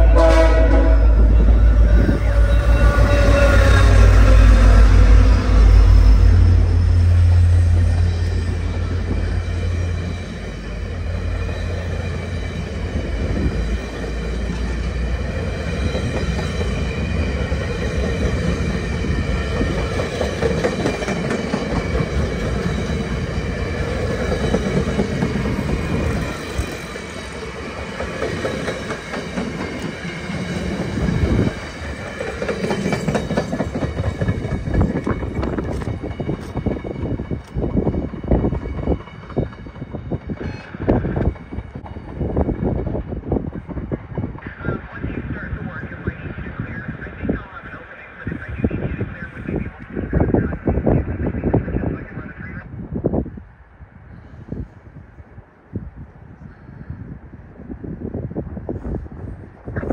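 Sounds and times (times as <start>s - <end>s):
low diesel locomotive drone: 0.0s - 59.9s
high-pitched wheel squeal: 1.3s - 14.7s, 40.3s - 41.2s.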